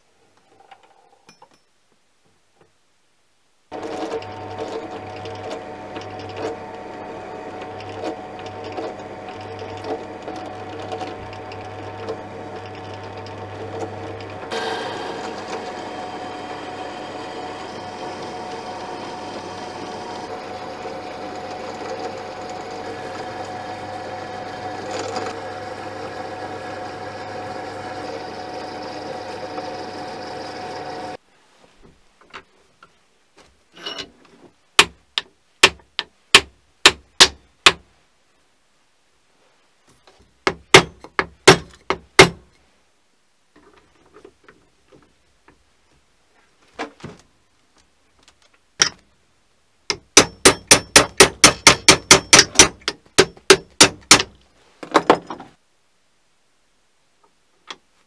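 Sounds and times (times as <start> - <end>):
drill cutting metal plate: 3.8 - 31.2
sharp knocks: 40.4 - 42.4, 49.9 - 55.4.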